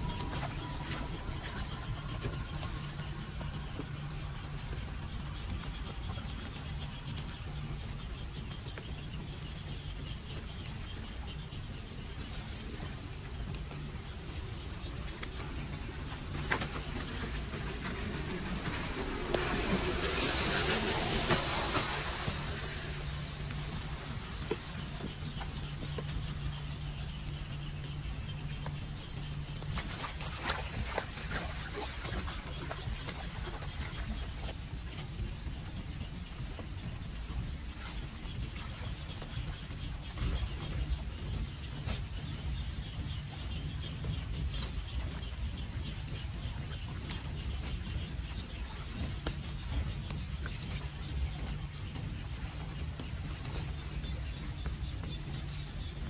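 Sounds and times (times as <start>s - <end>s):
rain falling on puddles: 0.0s - 41.3s
steady low hum: 0.0s - 56.0s
steady low rumble: 0.0s - 56.0s
rain on flooded street: 15.2s - 26.1s.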